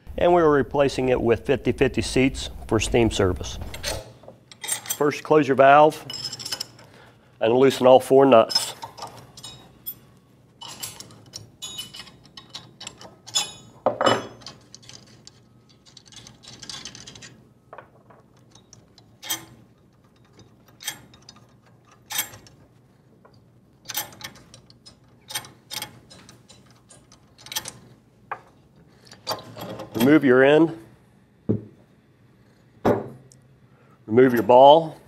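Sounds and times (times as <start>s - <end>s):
metal scraping: 0.0s - 4.2s
tools set down on wooden bench: 13.8s - 14.4s, 32.8s - 33.2s
wrench clicking on metal nuts: 23.9s - 27.8s.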